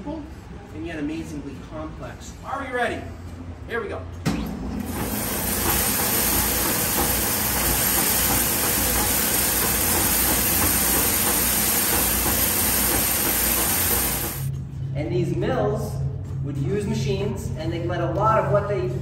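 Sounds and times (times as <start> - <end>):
spinning machine whirring and clattering: 4.4 - 14.5.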